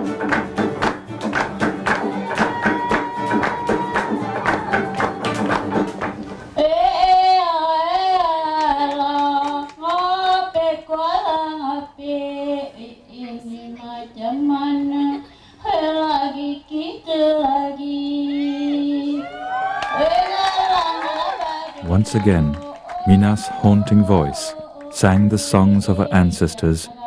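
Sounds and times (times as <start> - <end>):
singer breathing: 15.2 - 15.6.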